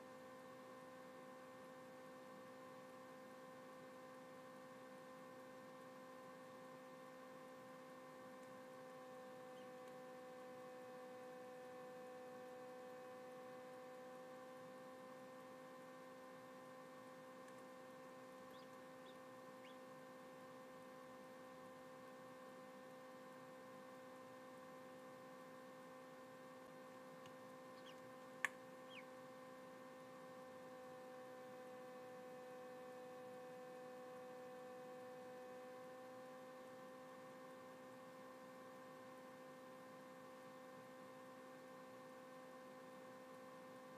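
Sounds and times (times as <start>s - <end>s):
incubator humming: 7.8s - 14.8s, 15.4s - 23.6s, 24.2s - 32.6s.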